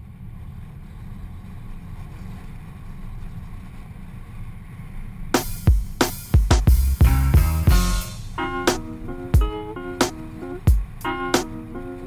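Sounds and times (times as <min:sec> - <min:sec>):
car driving rumble: 0:00.0 - 0:12.0
loud music with heavy drums: 0:05.4 - 0:11.5.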